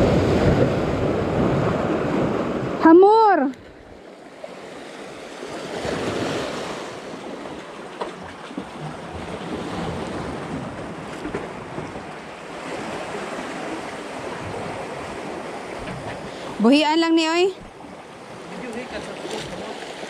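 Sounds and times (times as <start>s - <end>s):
wind buffeting microphone: 0.0s - 3.1s
sea surf breaking over rocks: 0.0s - 20.0s.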